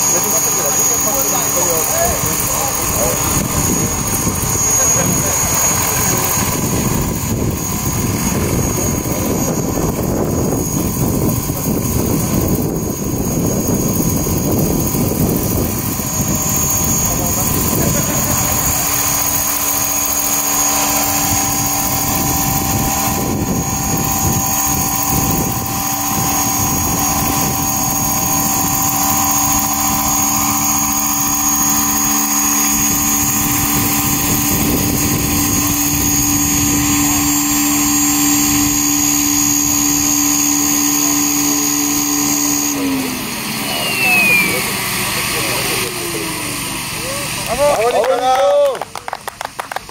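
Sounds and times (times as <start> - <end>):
rotor churning: 0.0 - 48.3
model helicopter motor whine: 0.0 - 49.9.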